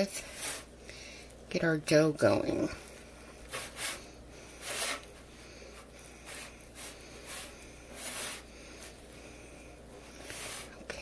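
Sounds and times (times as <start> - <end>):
hands mixing dough: 1.8 - 11.0.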